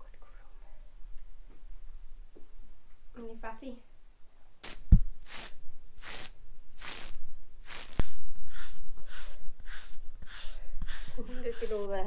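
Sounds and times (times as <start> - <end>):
brush swishing over horse coat: 7.7 - 12.0.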